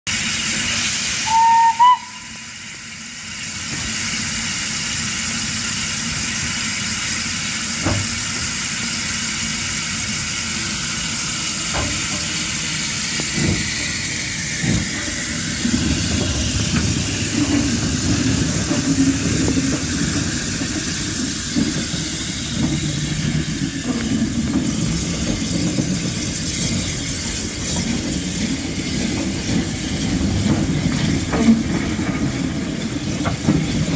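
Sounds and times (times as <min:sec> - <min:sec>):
low rumble of train moving: 0:00.1 - 0:33.9
steam locomotive hissing: 0:00.1 - 0:33.9
steam whistle blast: 0:01.2 - 0:02.7.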